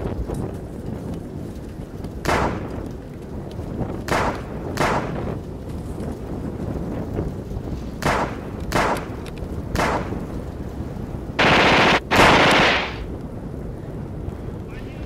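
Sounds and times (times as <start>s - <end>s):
rifle shots: 4.1s - 5.2s, 8.0s - 9.2s, 9.8s - 10.2s, 11.4s - 13.1s
automatic gunfire bursts: 11.4s - 13.0s.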